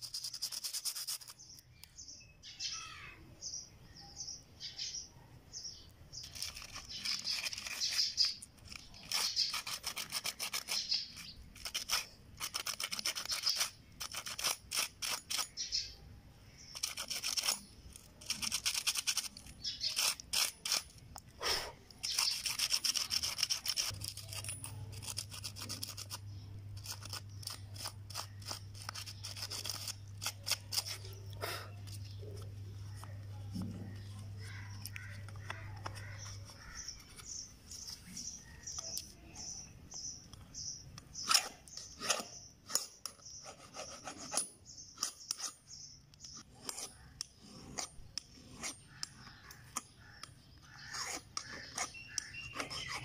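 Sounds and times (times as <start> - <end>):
sandpaper scratching metal: 0.0 - 1.6, 6.2 - 15.9, 16.7 - 21.0, 22.0 - 26.2, 26.8 - 31.2, 41.2 - 45.6.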